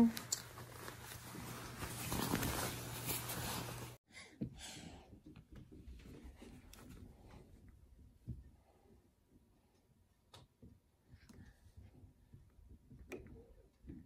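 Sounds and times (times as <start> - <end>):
puffy jacket rustling: 0.0 - 4.0.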